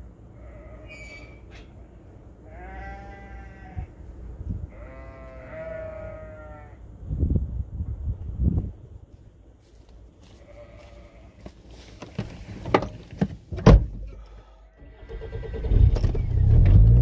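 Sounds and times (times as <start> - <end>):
sheep bleating: 0.4 - 1.2, 2.4 - 3.9, 4.7 - 6.8, 10.4 - 11.4.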